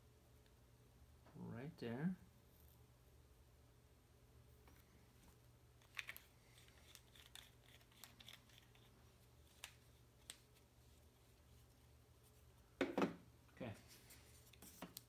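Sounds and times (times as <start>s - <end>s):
low room hum: 0.0s - 15.0s
faint clicks and rustles of handling: 4.5s - 12.8s, 13.5s - 15.0s.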